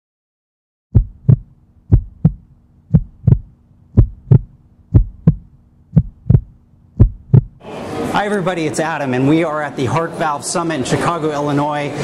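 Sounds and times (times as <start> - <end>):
heartbeat thumps: 0.9 - 7.6
faint steady hum: 1.0 - 8.0.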